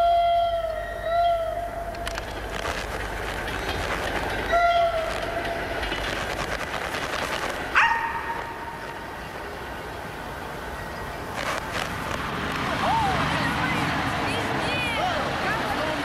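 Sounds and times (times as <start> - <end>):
train wheels clattering on rails: 1.9 - 16.0
train whistle blast: 4.5 - 5.1.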